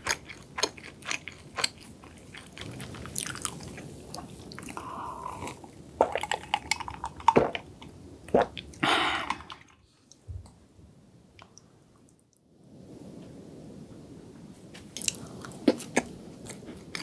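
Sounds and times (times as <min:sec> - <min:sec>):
gulping and swallowing: 0:02.4 - 0:07.7.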